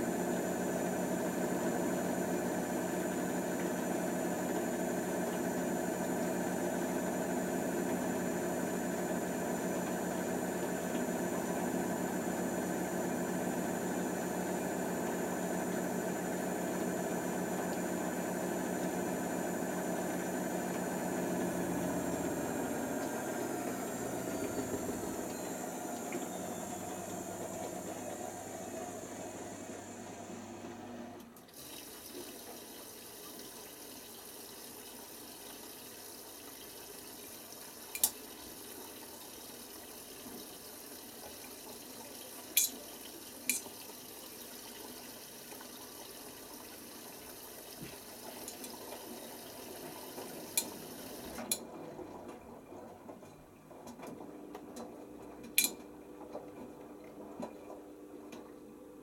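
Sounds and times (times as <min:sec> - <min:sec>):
washing machine drum winding down: 0:09.2 - 0:31.7
water hissing through fill valves: 0:20.7 - 0:29.7, 0:31.4 - 0:51.5.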